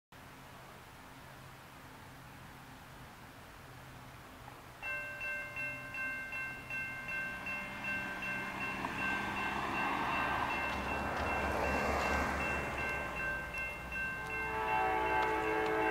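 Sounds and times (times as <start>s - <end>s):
car passing: 4.8s - 15.9s
crossing warning bell ringing: 4.8s - 15.9s.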